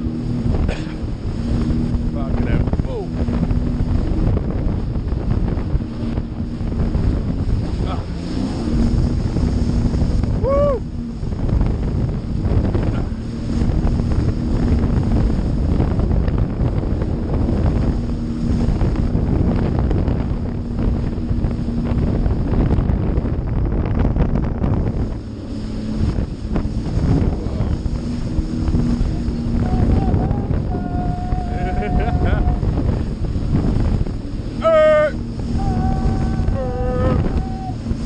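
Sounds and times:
jet ski engine hum: 0:00.0 - 0:38.0
rushing water: 0:00.0 - 0:38.0
wind buffeting microphone: 0:00.0 - 0:38.0
high cry: 0:29.6 - 0:32.7, 0:34.6 - 0:37.9.

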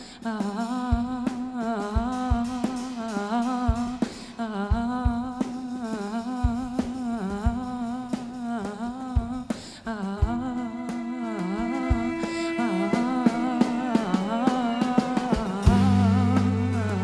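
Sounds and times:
low drum thumps: 0:09.2 - 0:17.0
live band playing: 0:11.0 - 0:17.0.

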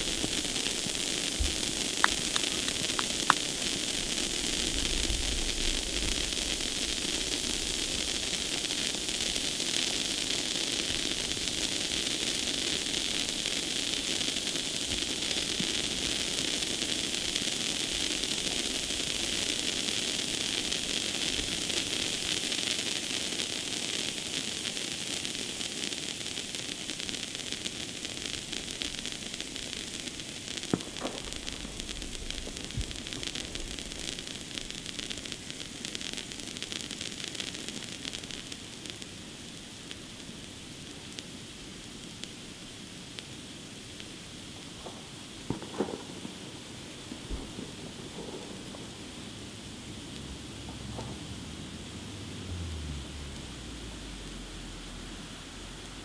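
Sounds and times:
sharp pops: 0:00.0 - 0:04.7, 0:30.1 - 0:39.0
firework fountains hissing: 0:00.0 - 0:56.0.

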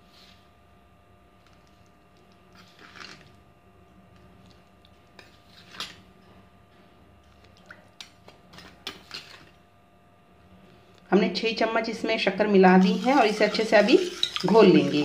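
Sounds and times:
metal spoon scraping steel bowl: 0:12.8 - 0:15.0.

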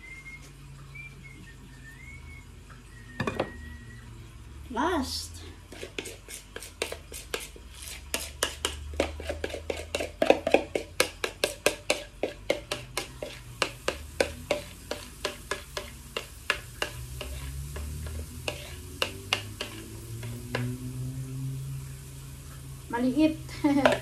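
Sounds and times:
faint batter sizzling in pan: 0:00.0 - 0:24.0
metal spoon scraping ceramic bowl: 0:05.7 - 0:20.4.

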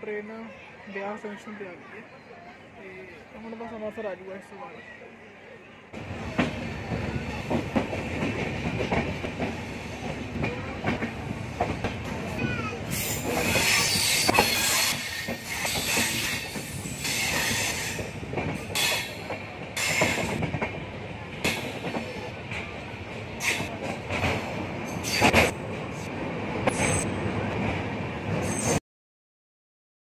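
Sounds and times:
train wheels rolling on rails: 0:06.0 - 0:28.8
high wheel squeal: 0:12.9 - 0:18.1.

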